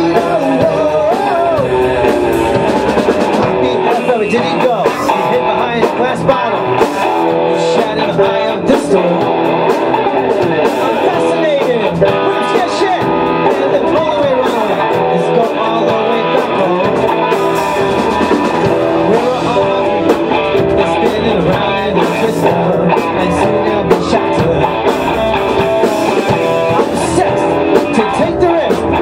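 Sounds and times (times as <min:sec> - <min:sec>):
electric guitar bending notes: 0:00.0 - 0:29.0
rock band playing: 0:00.0 - 0:29.0.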